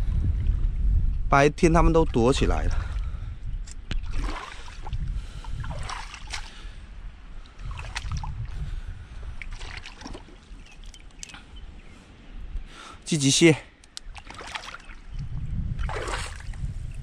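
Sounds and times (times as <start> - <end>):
footsteps wading through water: 3.9 - 11.8, 14.0 - 16.6
sharp clicks: 13.8 - 14.1.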